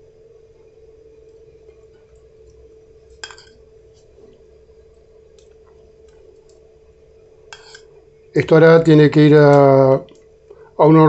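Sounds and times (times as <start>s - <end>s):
steady low hum: 0.0s - 11.0s
metal spoon clinking against dish: 3.2s - 3.6s, 7.5s - 7.9s.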